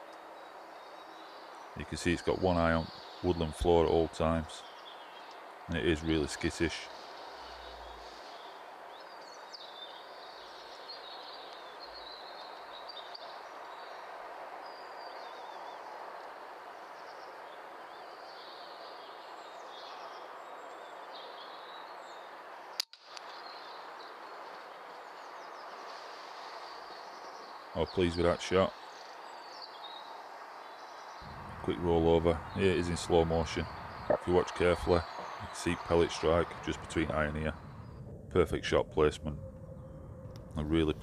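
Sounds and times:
small birds chirping: 0:00.0 - 0:41.0
faint hiss: 0:04.6 - 0:11.9, 0:23.1 - 0:34.2.

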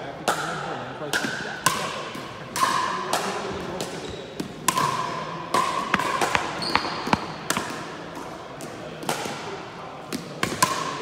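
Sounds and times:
paddles hitting plastic ball: 0:01.1 - 0:11.0
ball bouncing: 0:02.6 - 0:09.3.

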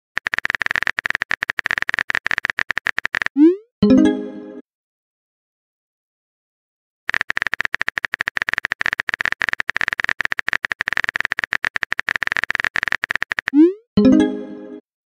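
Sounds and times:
keyboard typing clicks: 0:00.2 - 0:03.6, 0:07.1 - 0:13.7.

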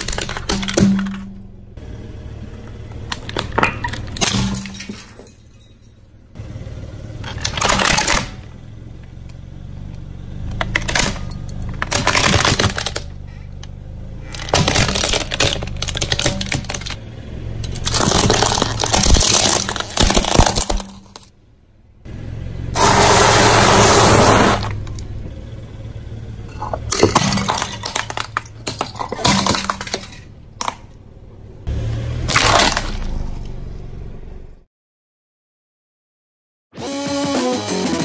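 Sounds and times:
objects crushed under car tyres: 0:00.0 - 0:01.5, 0:03.0 - 0:06.0, 0:07.2 - 0:08.5, 0:10.6 - 0:13.5, 0:14.2 - 0:17.0, 0:17.6 - 0:21.4, 0:22.8 - 0:24.9, 0:26.5 - 0:31.0, 0:32.2 - 0:33.5.

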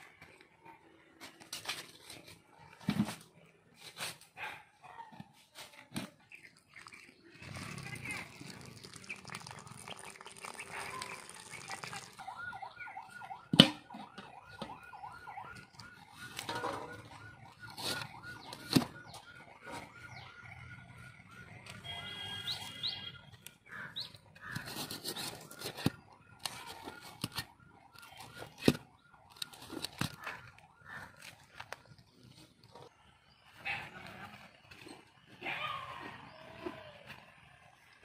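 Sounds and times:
rapid repeated chirps: 0:06.3 - 0:13.3
water pouring onto ground: 0:06.5 - 0:12.8.

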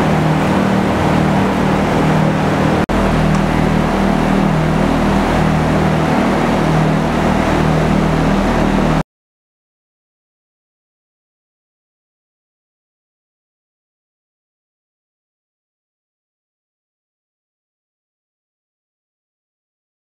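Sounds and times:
machine running with low hum: 0:00.0 - 0:09.0.

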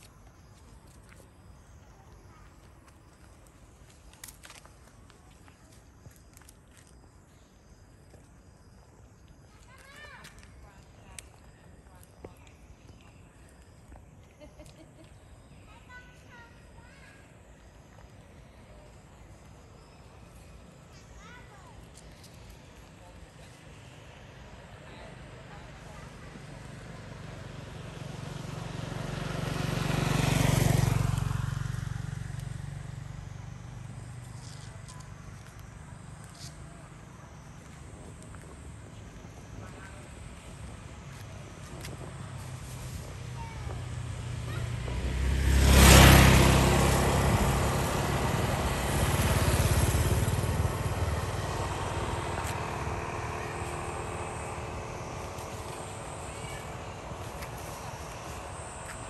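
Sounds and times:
vehicle driving past: 0:24.6 - 0:34.6, 0:39.7 - 0:59.0.

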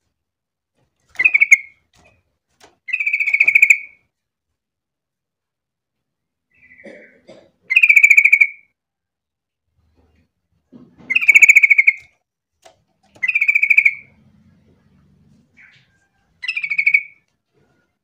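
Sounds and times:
bulbul singing: 0:01.2 - 0:01.8, 0:02.9 - 0:04.0, 0:11.1 - 0:12.1, 0:13.2 - 0:14.2, 0:15.6 - 0:17.2.

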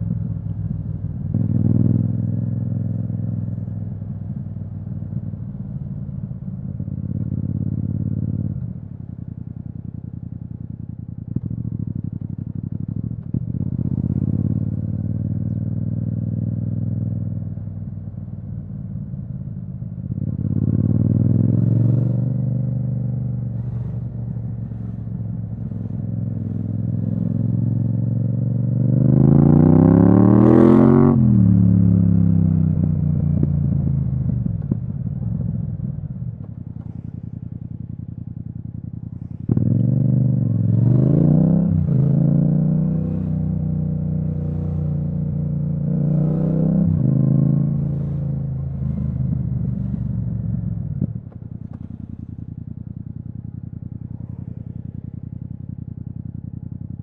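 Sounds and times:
motorcycle engine revving: 0:00.0 - 0:05.7, 0:11.0 - 0:17.7, 0:20.1 - 0:57.0.

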